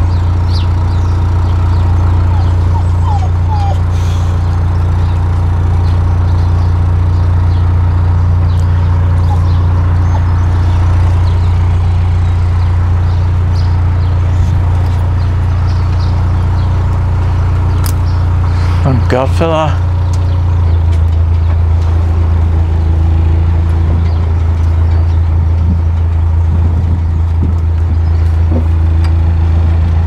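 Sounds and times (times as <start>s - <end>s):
boat diesel engine droning: 0.0s - 30.0s.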